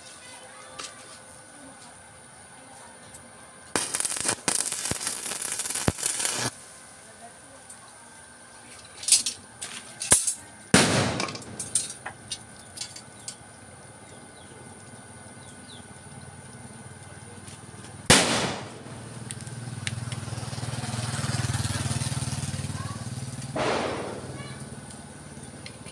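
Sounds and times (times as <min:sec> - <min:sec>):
sharp knocks and bangs: 0:10.8 - 0:11.9, 0:23.6 - 0:24.8.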